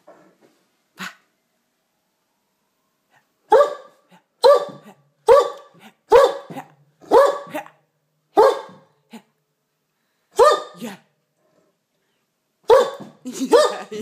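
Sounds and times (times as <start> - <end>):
large dog barking: 3.5 - 9.0, 10.4 - 10.8, 12.6 - 14.0.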